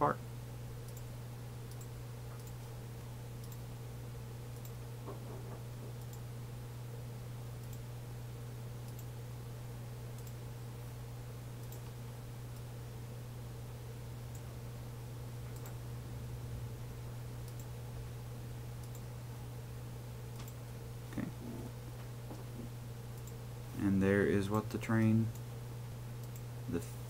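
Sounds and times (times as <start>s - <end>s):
steady low hum: 0.0s - 27.0s
computer mouse clicking: 0.8s - 1.1s, 1.7s - 2.6s, 3.4s - 3.6s, 4.5s - 4.8s, 6.0s - 6.2s, 7.6s - 7.8s, 8.8s - 9.1s, 10.2s - 10.4s, 11.6s - 12.7s, 15.5s - 15.8s, 17.4s - 17.7s, 18.8s - 19.1s, 20.3s - 20.6s, 23.2s - 23.4s, 26.2s - 26.5s.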